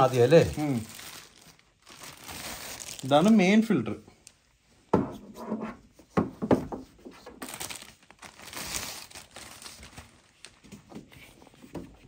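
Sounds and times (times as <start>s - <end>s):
plastic wrapping crinkling: 0.0s - 4.4s, 7.1s - 11.3s.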